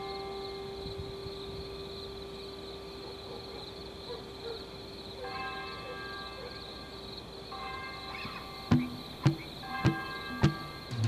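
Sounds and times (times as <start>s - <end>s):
bell-like chime: 0.0s - 2.2s, 5.2s - 11.0s
faint steady drone: 0.0s - 11.0s.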